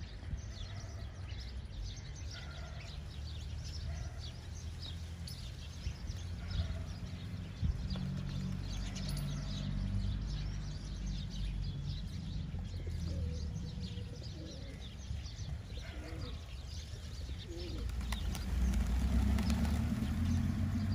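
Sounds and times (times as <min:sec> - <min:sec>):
pigeons cooing: 0:12.7 - 0:20.9.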